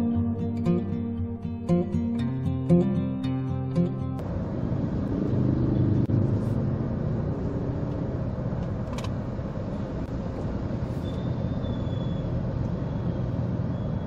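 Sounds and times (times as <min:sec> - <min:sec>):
car engine rumbling: 0:04.2 - 0:14.0.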